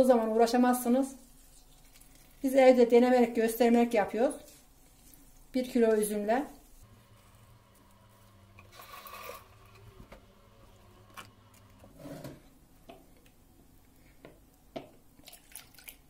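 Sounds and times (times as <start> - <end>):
low steady hum: 4.0 - 15.2.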